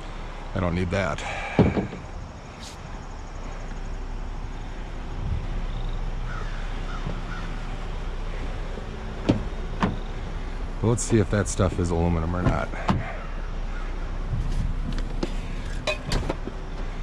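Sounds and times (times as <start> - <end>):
outdoor background hiss: 0.0 - 17.0
crow cawing: 6.2 - 7.8, 13.0 - 14.0.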